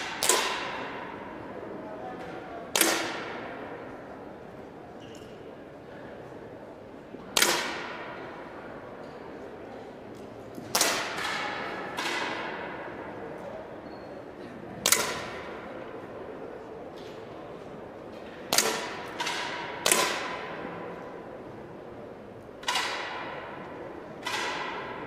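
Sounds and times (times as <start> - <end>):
ringing echo in hall: 0.0 - 25.0.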